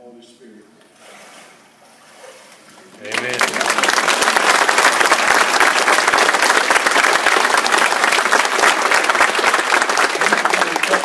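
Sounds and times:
congregation applauding: 0:03.0 - 0:11.0.

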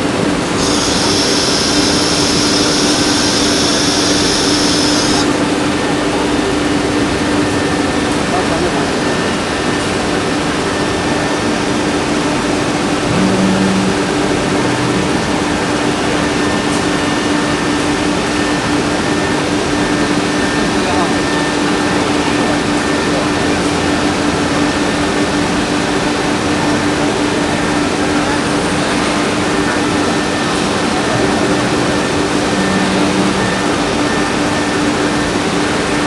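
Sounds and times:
router carving wood: 0:00.6 - 0:05.3
people talking: 0:08.3 - 0:09.0, 0:20.8 - 0:21.3.

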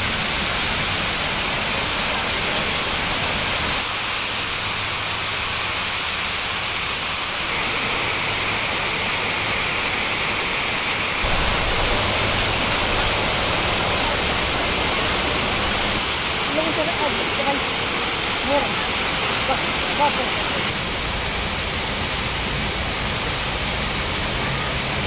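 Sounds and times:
waterfall rushing: 0:00.0 - 0:25.0
deep rumble: 0:11.2 - 0:16.1.

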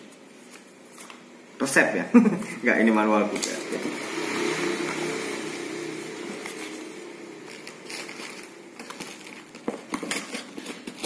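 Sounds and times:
paper rustling: 0:07.5 - 0:11.0.

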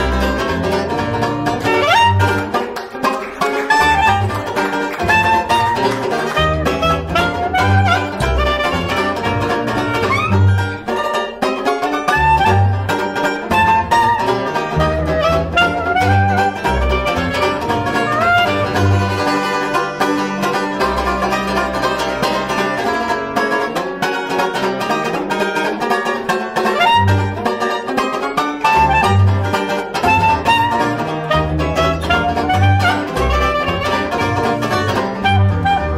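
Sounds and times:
clarinet melody: 0:00.0 - 0:35.9
double bass: 0:00.0 - 0:35.9
strummed banjo: 0:00.0 - 0:35.9.

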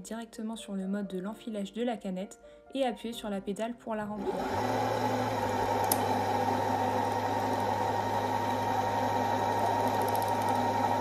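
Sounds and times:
sewing machine motor humming: 0:04.2 - 0:11.0.

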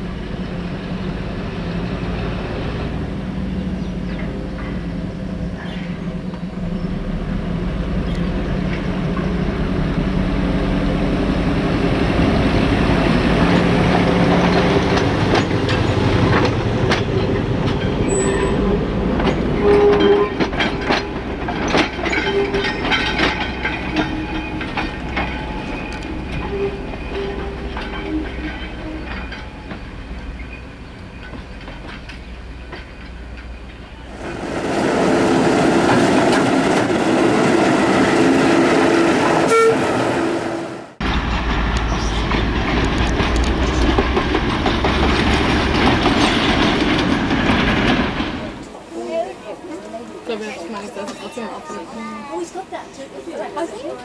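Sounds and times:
diesel locomotive engine drone: 0:00.0 - 0:50.6
wheels clicking over rail joints: 0:00.4 - 0:34.1, 0:41.0 - 0:48.9
wheel squeals: 0:16.9 - 0:33.1.

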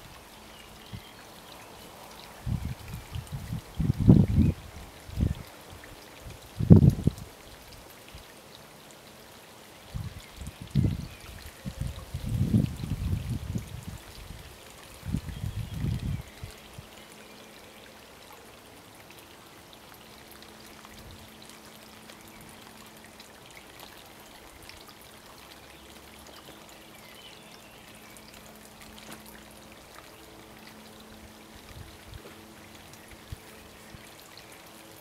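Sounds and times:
trickling water: 0:00.0 - 0:35.0
wind buffeting microphone: 0:02.4 - 0:05.5, 0:06.2 - 0:07.3, 0:09.9 - 0:16.8.

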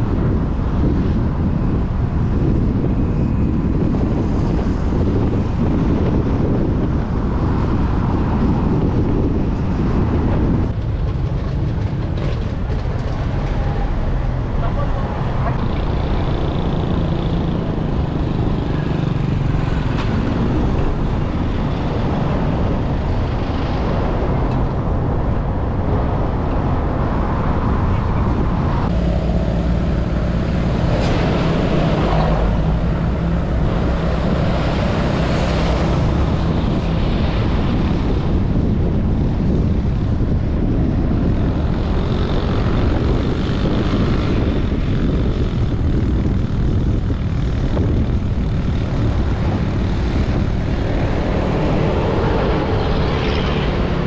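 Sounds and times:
passing traffic: 0:00.0 - 0:54.0
vehicle engine and tyre rumble: 0:00.0 - 0:54.0
truck passing close: 0:28.3 - 0:39.6.

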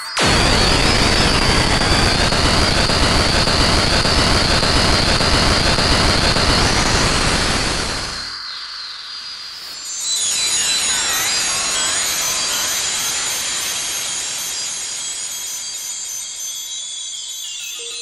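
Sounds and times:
synthesizer noise wash: 0:00.0 - 0:08.4.

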